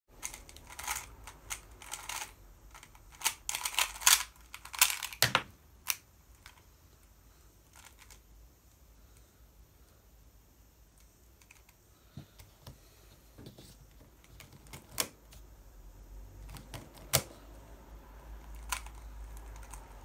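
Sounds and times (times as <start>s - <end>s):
puzzle cube clicking: 0.2s - 6.0s.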